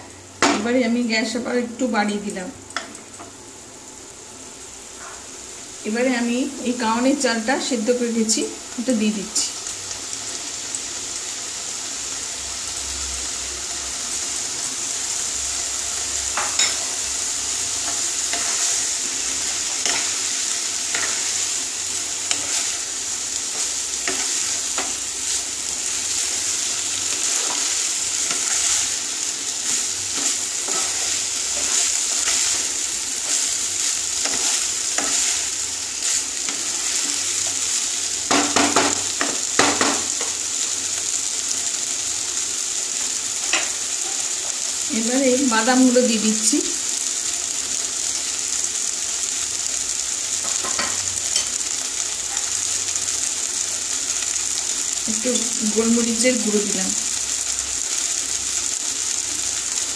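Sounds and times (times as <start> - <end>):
food sizzling in a pan: 0.0 - 59.9
spatula scraping a pan: 17.8 - 37.7
knocks on pan: 38.3 - 39.0, 39.6 - 40.0.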